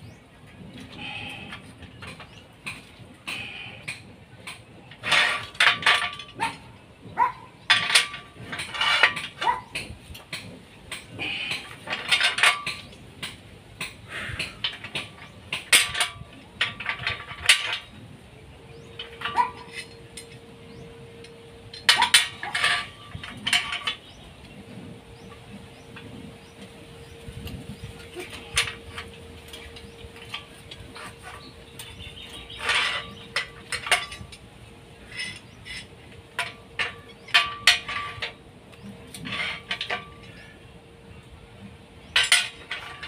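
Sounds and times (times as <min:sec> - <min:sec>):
steel bars clinking and clanking: 0:00.6 - 0:43.0.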